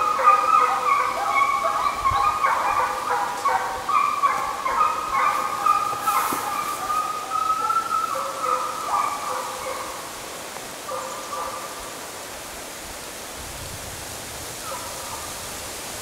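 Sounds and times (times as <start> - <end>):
hounds baying and yelping: 0.0 - 11.8.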